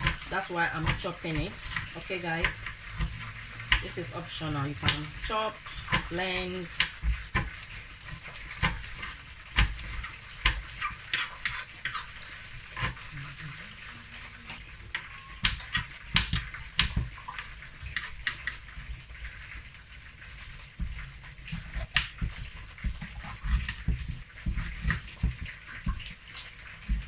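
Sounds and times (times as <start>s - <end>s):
knife chopping on wooden board: 5.8s - 12.0s, 15.4s - 17.2s, 20.8s - 26.1s.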